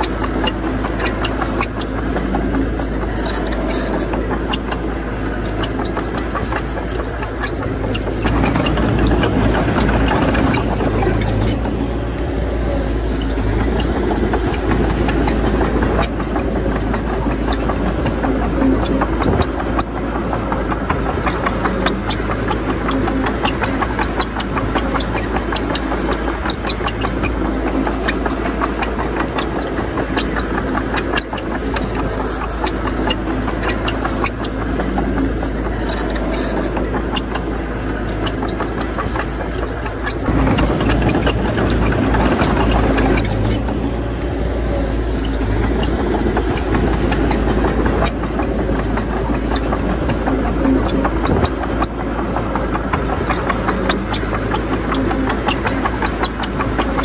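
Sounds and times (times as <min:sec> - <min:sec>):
bulldozer diesel engine running: 0:00.0 - 0:57.0.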